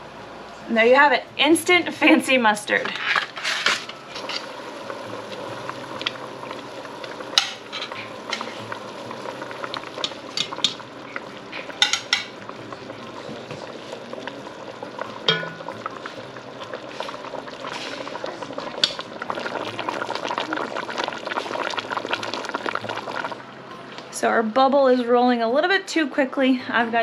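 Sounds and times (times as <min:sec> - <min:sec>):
liquid bubbling in a pot: 0:02.8 - 0:24.2
metal tongs clicking on pot: 0:10.0 - 0:10.8.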